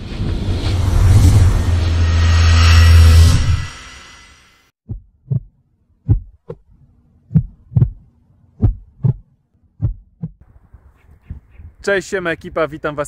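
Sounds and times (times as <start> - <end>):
heartbeat thumps: 4.8 - 5.5, 6.1 - 6.5, 7.3 - 10.4.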